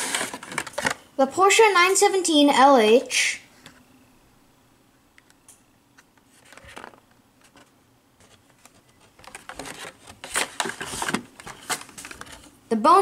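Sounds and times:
plastic packaging rustling and crinkling: 0.0 - 1.1, 6.2 - 12.6.

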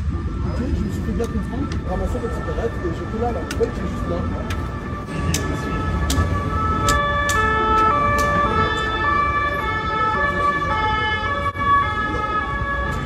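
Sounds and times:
siren-like stepping tones: 0.1 - 13.0
sharp clicks: 5.3 - 8.4.

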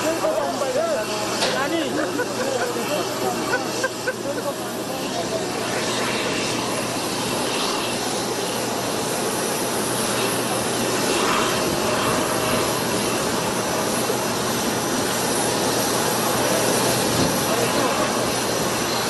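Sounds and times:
jet engine running: 0.0 - 19.0.

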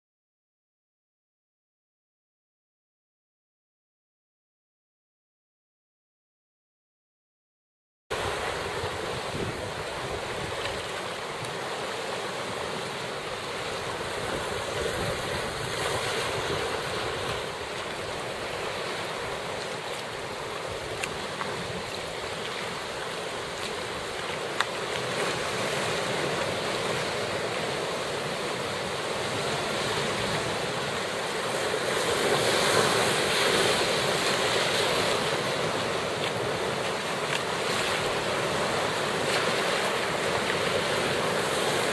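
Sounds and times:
wind buffeting microphone: 8.2 - 11.0, 13.8 - 23.0
waves breaking against rock: 8.2 - 41.9.

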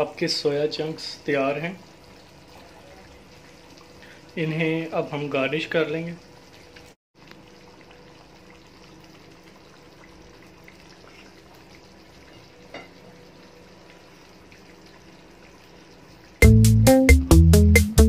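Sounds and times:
curry simmering with bubbling hiss: 0.0 - 16.4
loud music with steady beat: 16.4 - 18.0.

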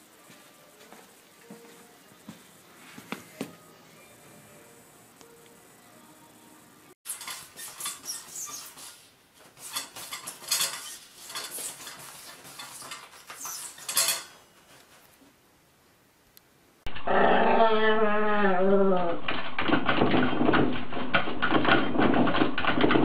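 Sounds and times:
paper rustling and scratching: 7.1 - 15.2.

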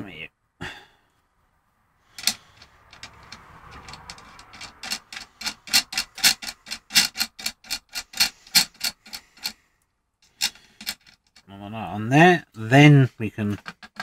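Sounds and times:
nut ticking along threaded rod: 2.2 - 9.6.

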